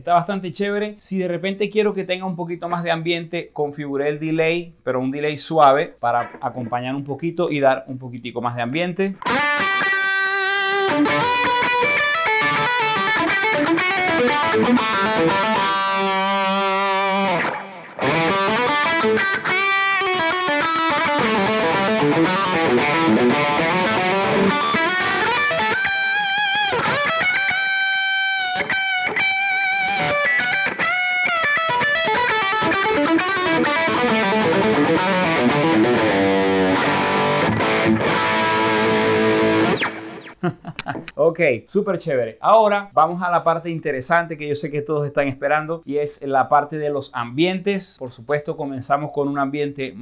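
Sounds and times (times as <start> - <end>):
overdriven electric guitar solo: 9.2 - 40.4.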